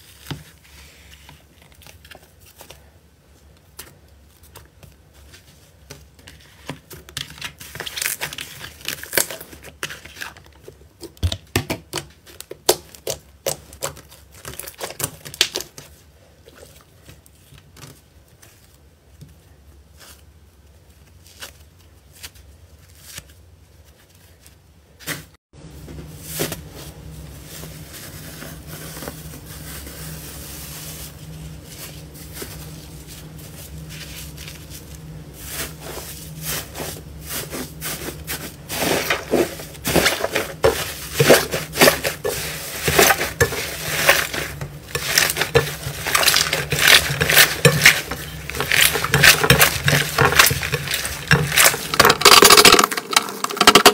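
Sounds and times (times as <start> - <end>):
steady low hum: 25.6 - 53.7.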